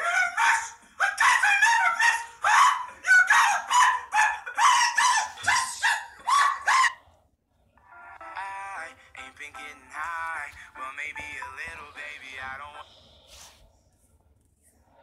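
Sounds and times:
short yelping cries: 0.0s - 7.0s.

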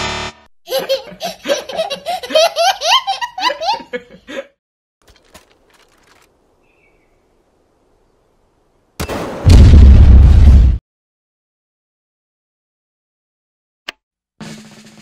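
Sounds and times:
child belly laughing: 0.7s - 4.5s.

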